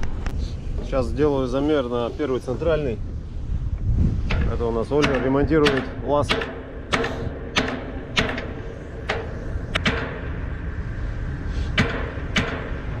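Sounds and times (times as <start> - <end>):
steady low rumble: 0.0 - 13.0
metallic knocks on steel deck: 4.3 - 10.3, 11.8 - 12.8.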